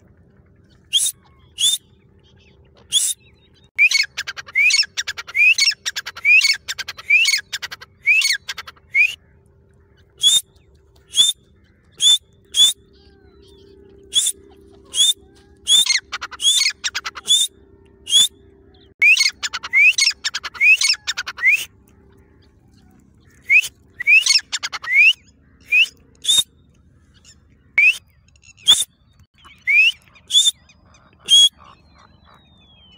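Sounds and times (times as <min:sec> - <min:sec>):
francolin whistled calls: 0:00.8 - 0:02.0, 0:02.8 - 0:09.3, 0:10.2 - 0:21.8, 0:23.2 - 0:26.6, 0:27.8 - 0:32.9.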